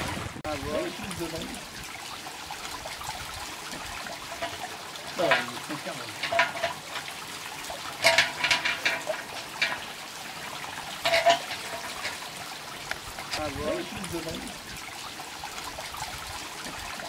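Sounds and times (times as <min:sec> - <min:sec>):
water trickling: 0:00.0 - 0:17.0
metal chain clinking and rattling: 0:06.1 - 0:07.1, 0:08.0 - 0:09.9, 0:11.0 - 0:12.4.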